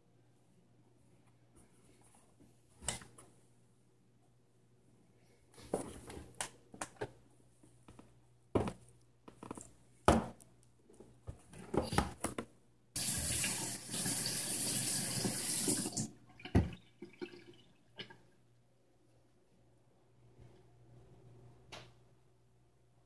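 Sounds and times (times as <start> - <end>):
running water: 13.0 - 18.3.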